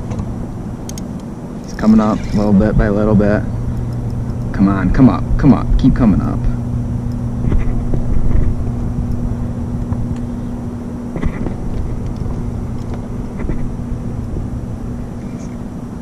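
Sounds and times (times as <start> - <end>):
trolling motor humming: 0.0 - 16.0.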